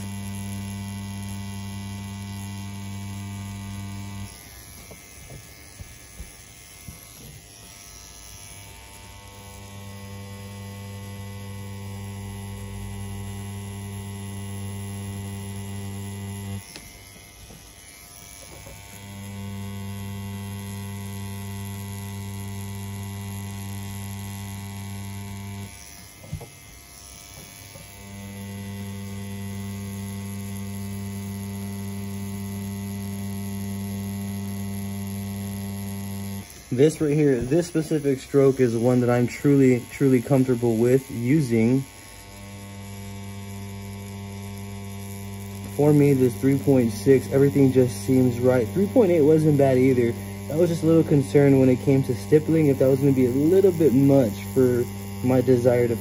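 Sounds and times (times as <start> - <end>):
tattoo machine humming: 0.0 - 56.0.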